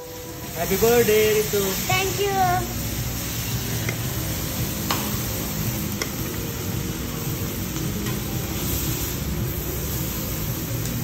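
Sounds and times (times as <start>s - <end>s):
restaurant background hiss: 0.0s - 11.0s.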